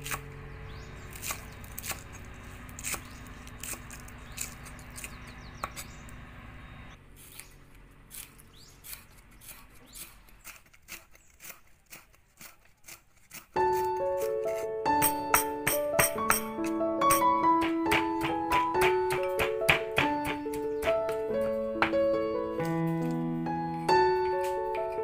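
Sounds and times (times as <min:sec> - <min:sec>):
cleaver knocking on wooden board: 0:15.0 - 0:22.0.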